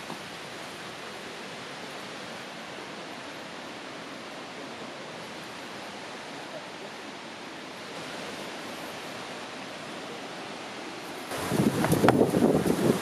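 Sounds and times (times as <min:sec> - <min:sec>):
distant river rushing: 0:00.0 - 0:13.0
wind buffeting microphone: 0:11.3 - 0:13.0.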